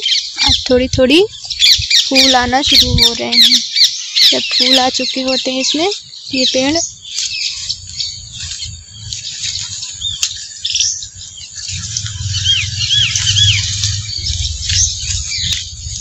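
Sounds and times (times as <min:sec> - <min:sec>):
birds chirping: 0:00.0 - 0:16.0
low microphone rumble: 0:00.5 - 0:03.3, 0:10.8 - 0:16.0.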